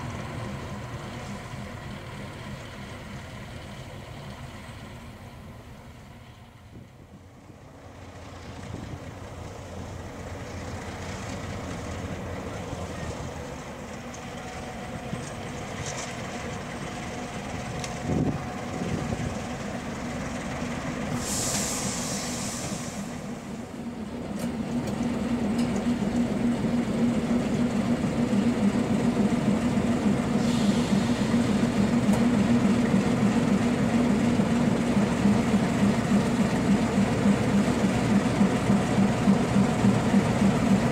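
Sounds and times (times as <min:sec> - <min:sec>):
locomotive engine droning: 0:00.0 - 0:40.9
brief hiss: 0:21.1 - 0:23.4.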